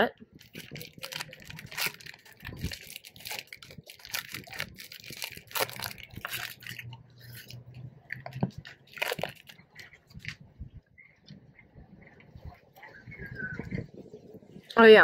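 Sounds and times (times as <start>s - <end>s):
crunching wafer bites: 0.3s - 10.4s
foil wrapper crinkling: 0.3s - 10.4s
chewing: 0.3s - 13.8s.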